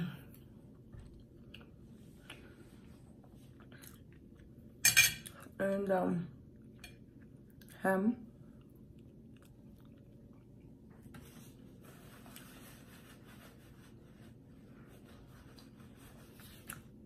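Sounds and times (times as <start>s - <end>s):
paper napkin rustling: 11.1s - 17.0s.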